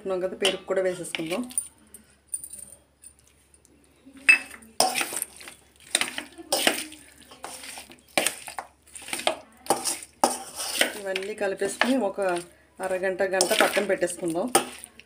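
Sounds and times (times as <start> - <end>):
metal spoon scraping steel bowl: 4.3 - 15.0.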